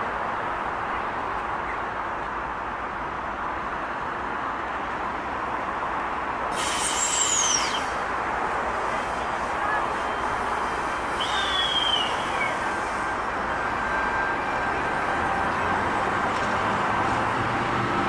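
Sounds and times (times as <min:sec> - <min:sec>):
air brake hiss with whistle: 0:06.5 - 0:08.0, 0:11.1 - 0:13.0.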